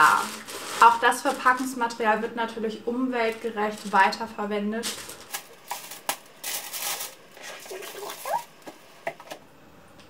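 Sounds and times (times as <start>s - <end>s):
tissue paper rustling: 0.0s - 2.0s, 3.2s - 8.5s.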